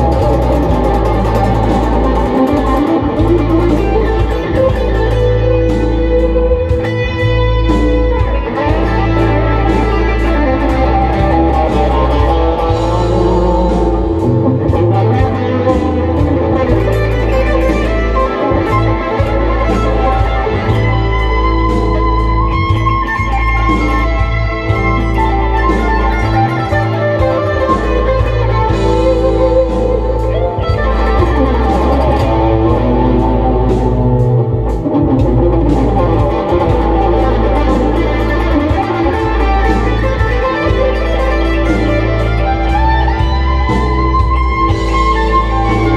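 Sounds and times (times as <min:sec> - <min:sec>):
backing track with bass and drums: 0:00.0 - 0:45.9
electric guitar lead: 0:00.0 - 0:45.9.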